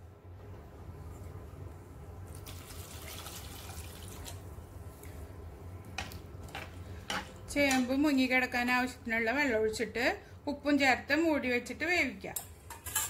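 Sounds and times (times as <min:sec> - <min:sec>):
water pouring into pot: 0:02.3 - 0:04.4.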